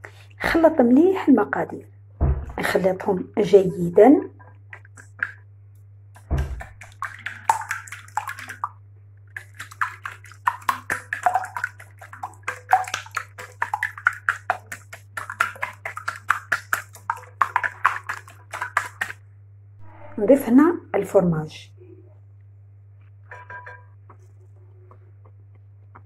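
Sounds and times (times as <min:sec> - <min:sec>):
steady low hum: 0:00.0 - 0:26.0
low thump: 0:02.2 - 0:02.6, 0:06.3 - 0:06.6
wire whisk beating batter in bowl: 0:09.4 - 0:19.2.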